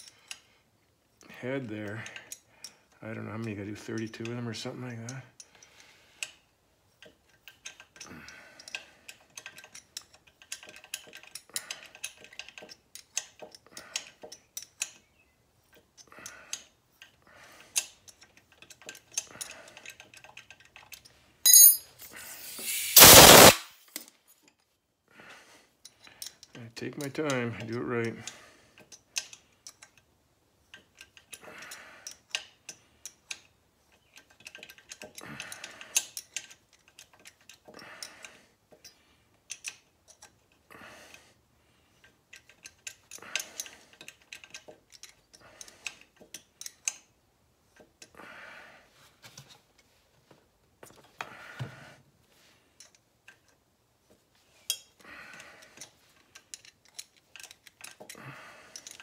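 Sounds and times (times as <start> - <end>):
ratchet wrench clicking: 22.4 - 23.6.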